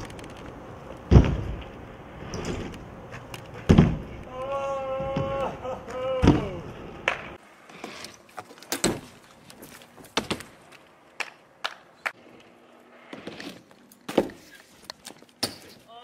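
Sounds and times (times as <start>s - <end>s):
bmx tyres rolling on concrete: 0.0s - 15.8s.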